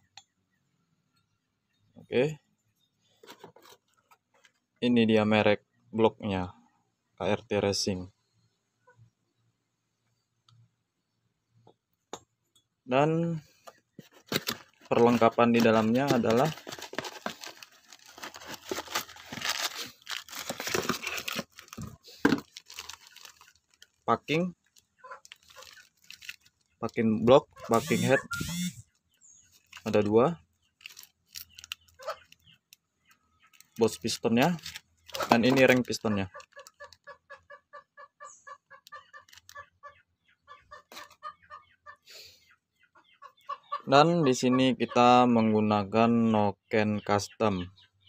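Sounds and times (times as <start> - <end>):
cardboard box rustling: 14.0 - 23.5
plastic packaging crinkling: 14.1 - 26.6, 30.8 - 32.4, 34.5 - 36.7
chicken clucking: 27.4 - 28.7, 35.1 - 45.5.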